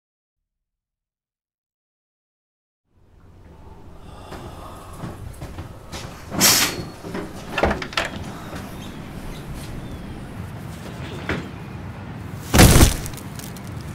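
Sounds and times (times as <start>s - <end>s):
low rumble: 3.1s - 10.5s
sharp knocks and bangs: 12.5s - 13.2s.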